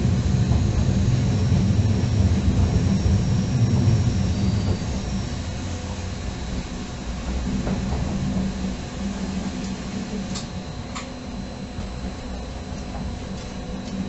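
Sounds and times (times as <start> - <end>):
train wheels rumbling: 0.0 - 14.0
faint high-pitched whistling: 4.0 - 5.3.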